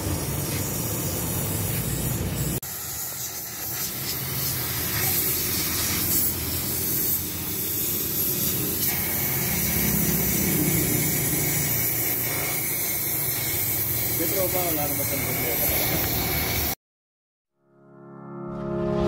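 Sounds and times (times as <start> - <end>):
pressure washer spray hissing: 0.0 - 16.8.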